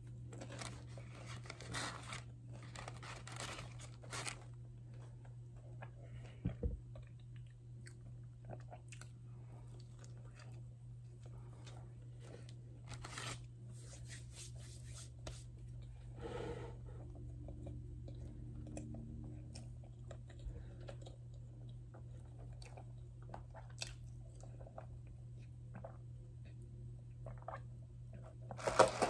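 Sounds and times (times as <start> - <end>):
steady low hum: 0.0 - 28.6
chewing with soft crunching: 4.5 - 12.7, 16.9 - 28.6.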